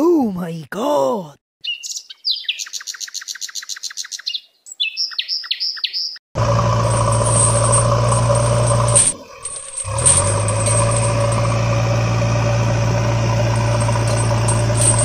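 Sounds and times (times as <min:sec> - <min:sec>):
bird chirping trill: 0:01.6 - 0:06.2
vehicle engine running: 0:06.4 - 0:15.0.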